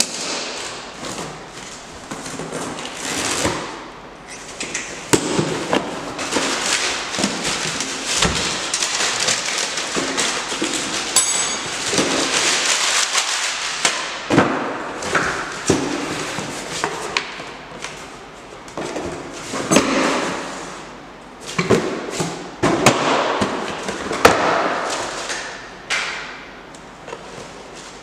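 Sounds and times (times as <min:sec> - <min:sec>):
paper and cardboard rustling: 0:05.4 - 0:13.9.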